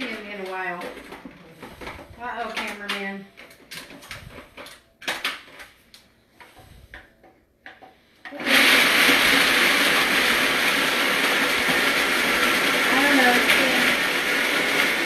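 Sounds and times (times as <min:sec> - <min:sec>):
blender crushing ice: 0:08.2 - 0:15.0.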